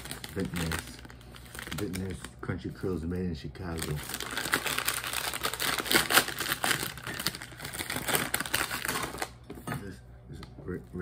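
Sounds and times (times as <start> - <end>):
chip bag crinkling: 0.0 - 3.0, 3.6 - 9.4.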